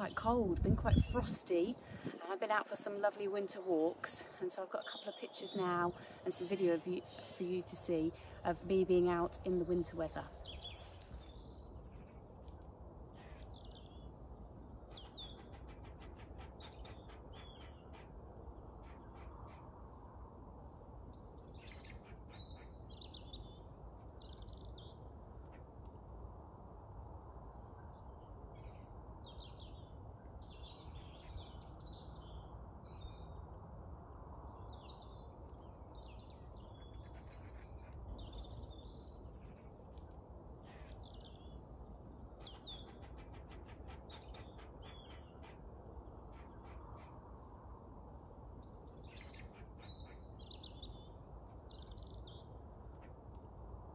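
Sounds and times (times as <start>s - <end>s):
small birds chirping: 0.0s - 19.8s, 20.9s - 26.6s, 34.1s - 47.3s, 48.4s - 53.9s
squirrel chattering alarm call: 14.9s - 18.2s, 42.4s - 45.6s.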